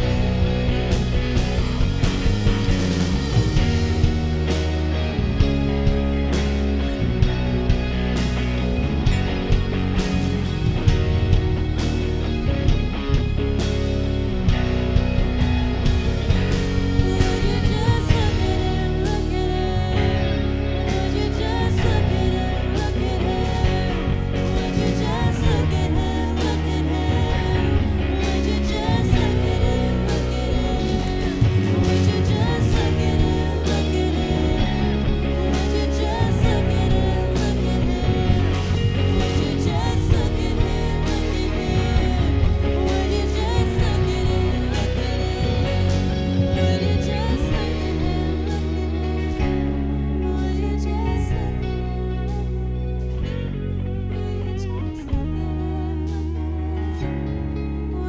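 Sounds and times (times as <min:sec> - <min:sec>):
band playing: 0:00.0 - 0:54.3
person singing: 0:16.2 - 0:58.0.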